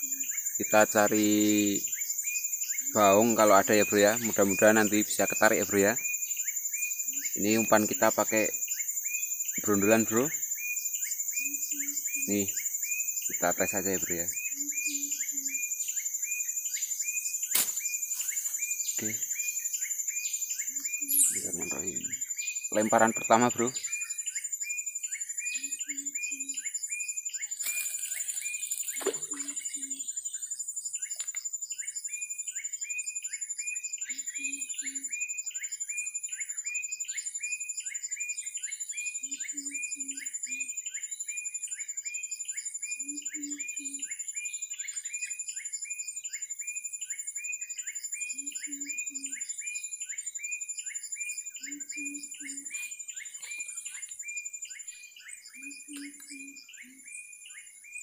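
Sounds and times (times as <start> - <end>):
high insect whine: 0.0 - 58.0
repeated chirping call: 0.0 - 58.0
low hooting call: 20.7 - 23.8.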